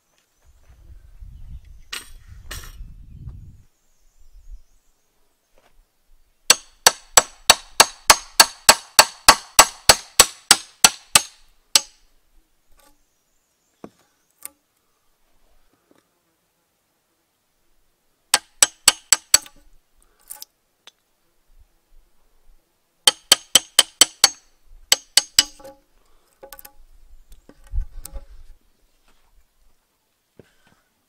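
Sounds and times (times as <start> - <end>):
hammer striking axe head: 6.5 - 12.0, 18.4 - 19.5, 23.1 - 25.8.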